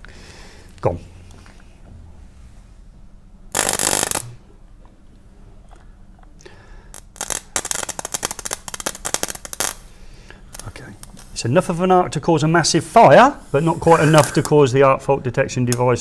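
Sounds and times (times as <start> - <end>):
electric arc crackling: 3.5 - 4.4, 7.0 - 9.9, 10.5 - 11.8.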